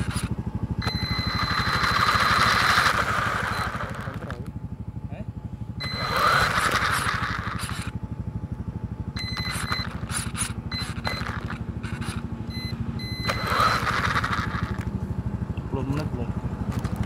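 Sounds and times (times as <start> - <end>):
toy truck motor whining: 0.0 - 4.5, 5.8 - 8.0, 9.2 - 14.9
buzzing drivetrain rattle: 0.0 - 17.0.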